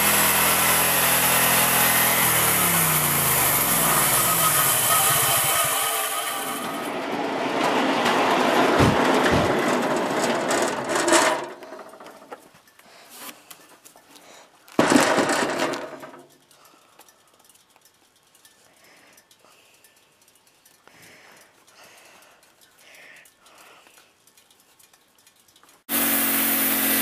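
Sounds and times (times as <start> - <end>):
sawmill engine cutting log: 0.0 - 11.7, 25.9 - 27.0.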